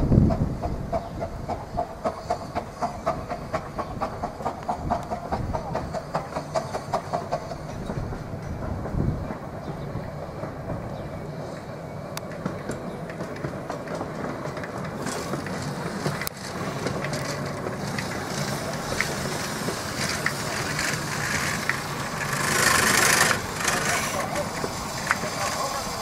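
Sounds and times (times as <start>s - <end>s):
steam train rumbling: 0.0s - 26.0s
steam hiss: 17.7s - 26.0s.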